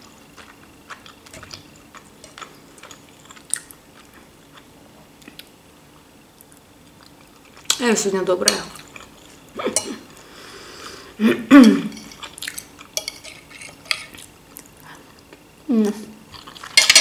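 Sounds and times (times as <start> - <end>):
fork scraping on plate: 13.0 - 14.2.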